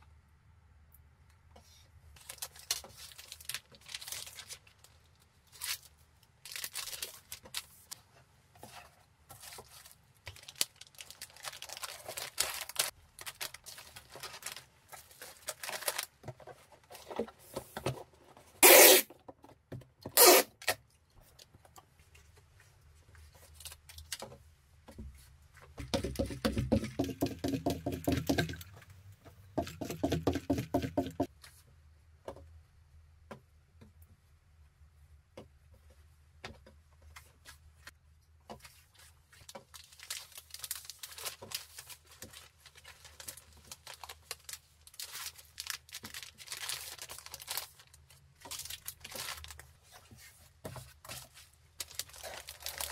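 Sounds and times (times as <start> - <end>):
plastic sleeve crinkling: 2.2 - 8.0, 9.3 - 16.2, 38.6 - 50.3, 50.9 - 52.9
loud ripping: 18.6 - 19.1, 20.2 - 20.8.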